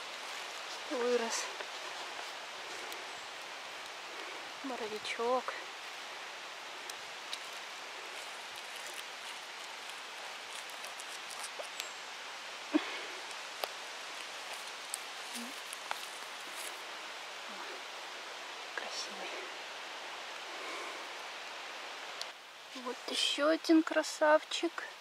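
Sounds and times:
rustling grass and leaf litter: 0.0 - 25.0
soft hiss: 0.0 - 25.0.

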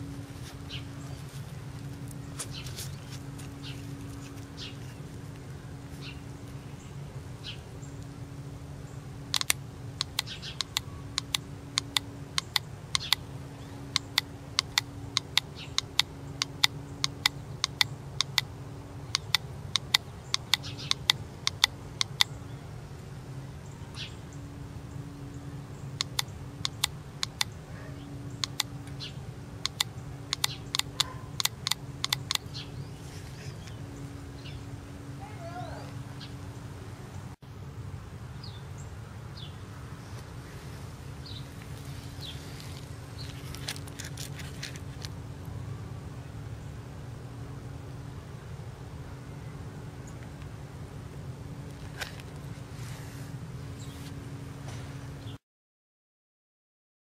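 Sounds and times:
steady low hum: 0.0 - 55.4
sharp irregular clicks: 9.3 - 13.2, 13.9 - 18.5, 19.1 - 22.3, 26.0 - 27.5, 28.4 - 32.6.

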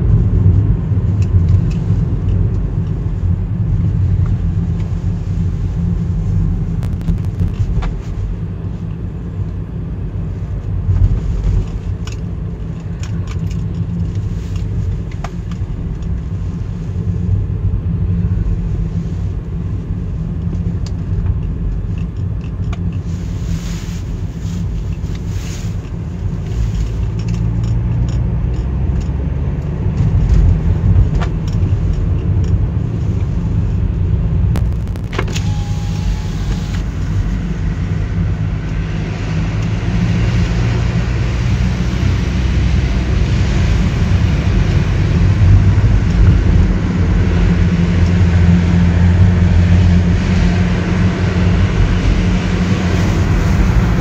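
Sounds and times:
car engine rumble: 0.0 - 54.0.

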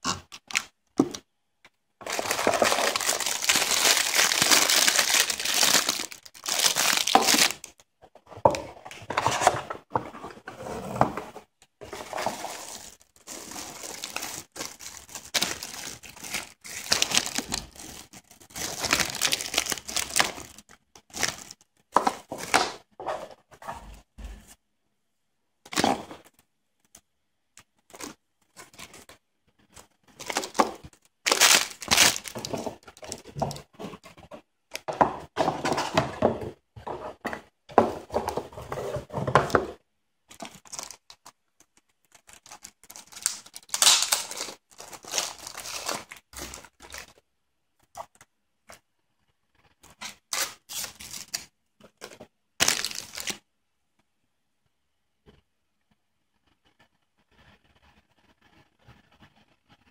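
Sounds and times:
plastic and cardboard crinkling: 2.0 - 24.5, 27.6 - 48.9, 49.6 - 53.4.

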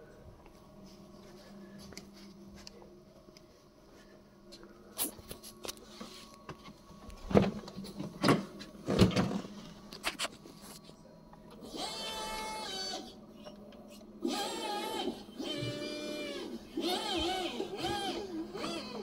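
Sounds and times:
hydraulic pump motor whining: 11.6 - 19.0.

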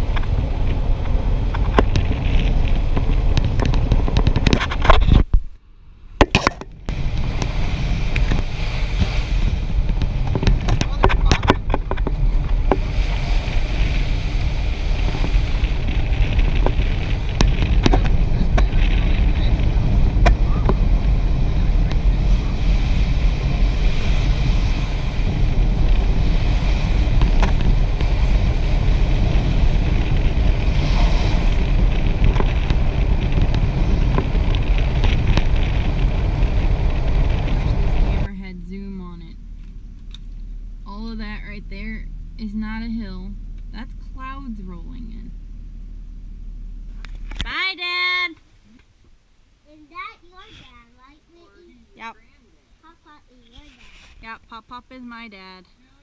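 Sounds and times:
wind rushing over camera: 0.0 - 5.6, 6.2 - 38.3
low road rumble: 0.0 - 56.0.

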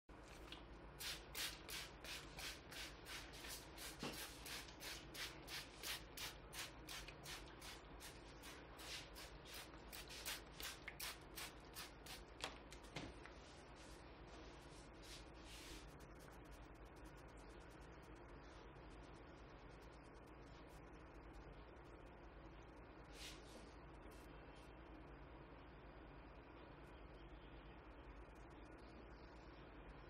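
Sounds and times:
swishing strokes on hair: 1.0 - 21.0, 23.0 - 24.3.

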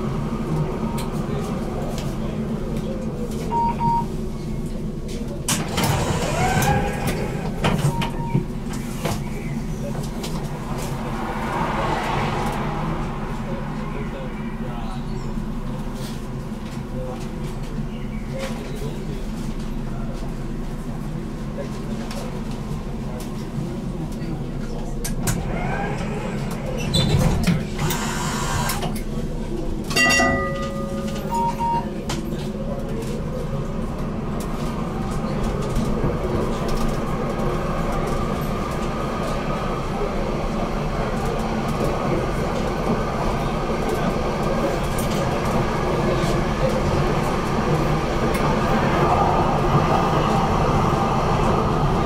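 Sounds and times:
tram rumbling: 0.0 - 52.0
tram double beep: 3.5 - 4.1, 6.2 - 8.6, 30.0 - 32.0.

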